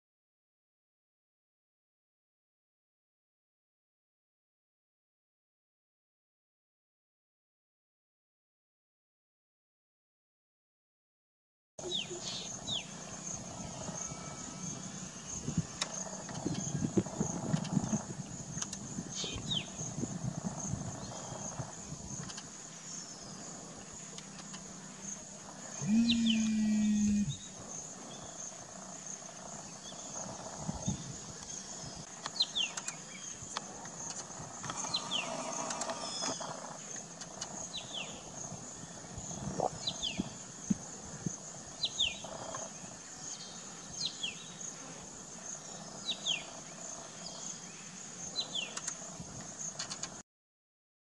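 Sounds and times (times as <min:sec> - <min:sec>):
insects buzzing: 0:11.8 - 0:50.2.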